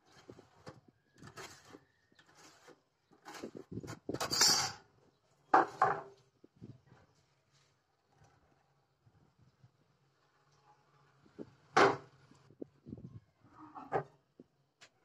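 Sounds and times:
metal scraping and rattling: 0:00.0 - 0:04.9.

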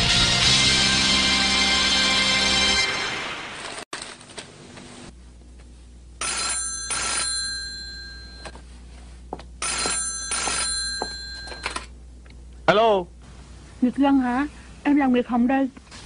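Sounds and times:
telephone bell ringing: 0:06.2 - 0:08.6, 0:09.6 - 0:11.9.

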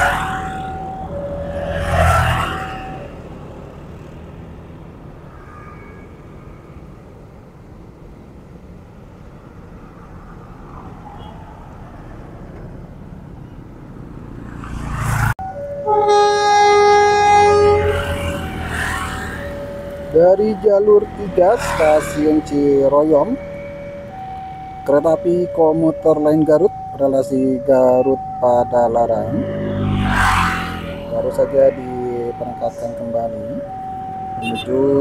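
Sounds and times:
train horn blast: 0:15.8 - 0:18.6, 0:34.4 - 0:34.8.

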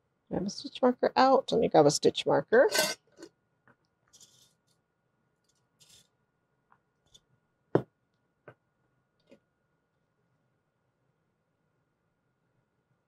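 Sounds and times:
plastic markers rustling in glass jar: 0:04.1 - 0:04.8, 0:05.4 - 0:06.1.

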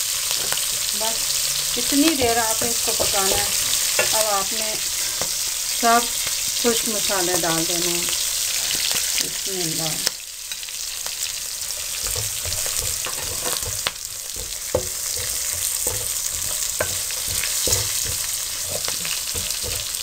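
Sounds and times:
spices sizzling in hot oil: 0:00.0 - 0:20.0
wooden spoon scraping a pan: 0:00.1 - 0:06.8, 0:11.3 - 0:20.0.

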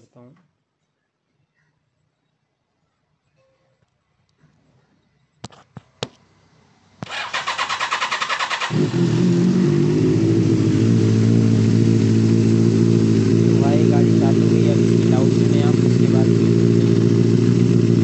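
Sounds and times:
electric starter cranking: 0:07.0 - 0:09.2
motorcycle engine idling: 0:07.0 - 0:18.0.

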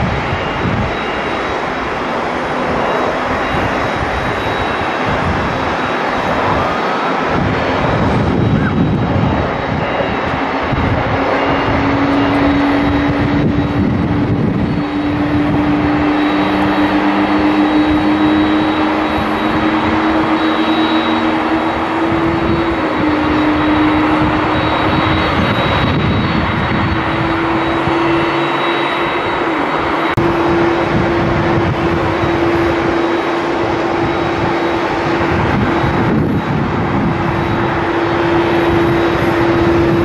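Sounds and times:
jet engines roaring: 0:00.0 - 0:40.0.

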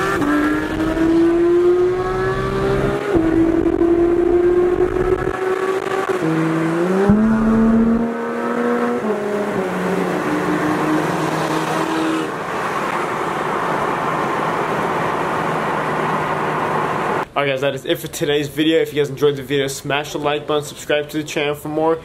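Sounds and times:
sports car engine: 0:00.0 - 0:17.3
road and wind noise: 0:00.0 - 0:17.4.

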